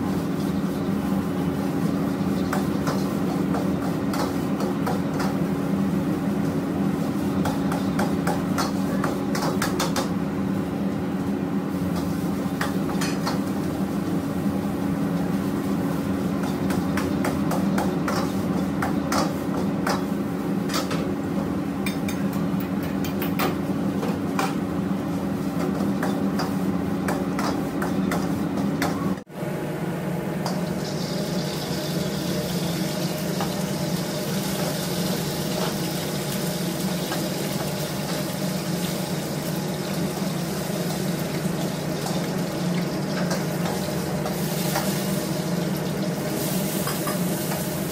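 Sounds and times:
low kitchen hum: 0:00.0 - 0:47.9.

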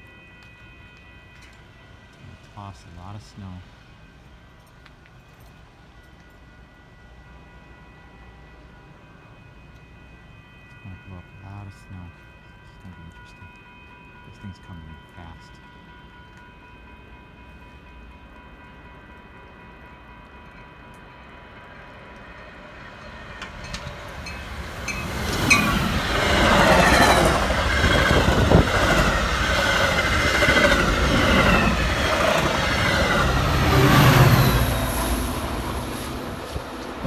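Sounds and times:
faint steady tones: 0:00.0 - 0:37.0
rail-joint clicks: 0:00.3 - 0:02.6, 0:20.2 - 0:34.4
deep train rumble: 0:15.0 - 0:37.0
train wheels rushing on rails: 0:18.7 - 0:37.0.

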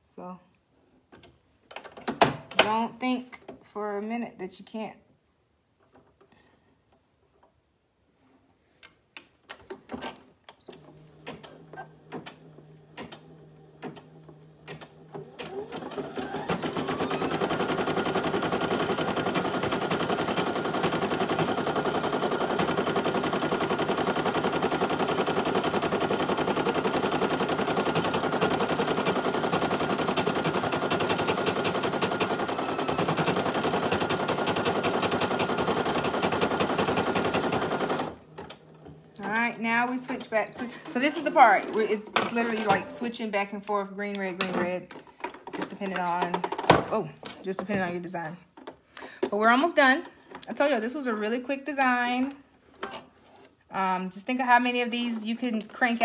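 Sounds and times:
embroidery machine stitching: 0:10.6 - 0:41.6.

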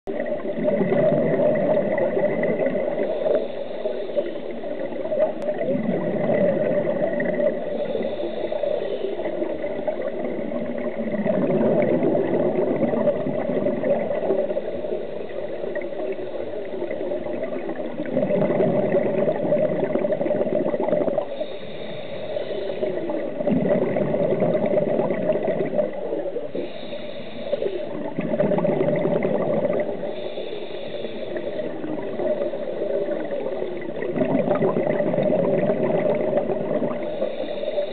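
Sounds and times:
gurgling exhaust bubbles: 0:00.1 - 0:03.4, 0:04.8 - 0:08.2, 0:09.3 - 0:14.7, 0:15.6 - 0:21.5, 0:22.8 - 0:26.7, 0:27.8 - 0:30.3, 0:31.4 - 0:37.2
regulator inhale hiss: 0:02.7 - 0:05.1, 0:07.5 - 0:10.2, 0:14.2 - 0:17.2, 0:21.2 - 0:23.4, 0:26.4 - 0:28.1, 0:29.8 - 0:33.8, 0:36.8 - 0:37.9.

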